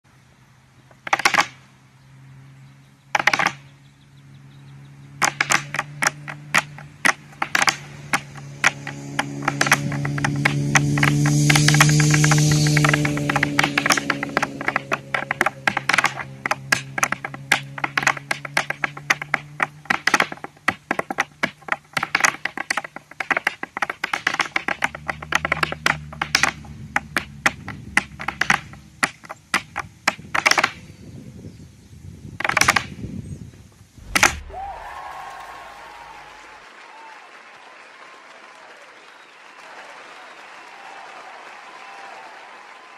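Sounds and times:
hard shoes tapping on dance board: 5.3s - 30.7s.

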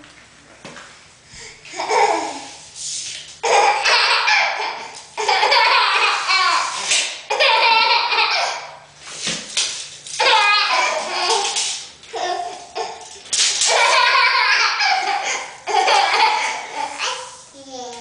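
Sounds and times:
baby laughing: 1.7s - 2.5s, 3.4s - 8.8s, 10.2s - 13.1s, 13.7s - 17.3s.

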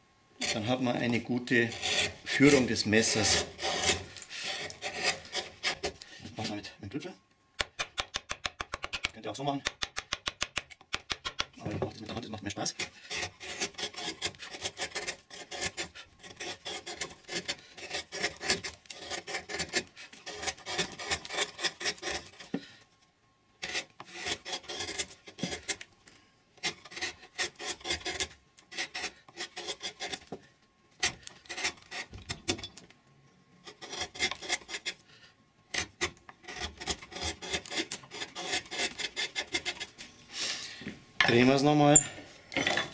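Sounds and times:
gouge cutting wood: 1.6s - 6.0s, 12.7s - 22.6s, 23.6s - 25.8s, 26.6s - 30.3s, 31.0s - 32.6s, 33.6s - 35.0s, 35.7s - 40.0s.

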